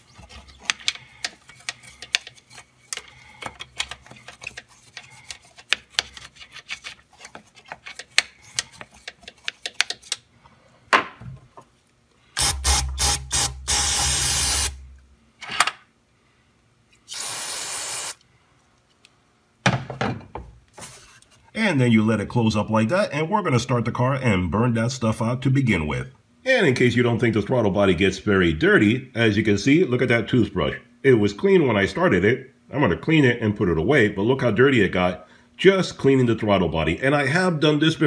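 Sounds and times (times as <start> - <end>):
toothbrush scrubbing: 0.0 - 10.2
spray hiss: 12.4 - 14.8, 17.1 - 18.2.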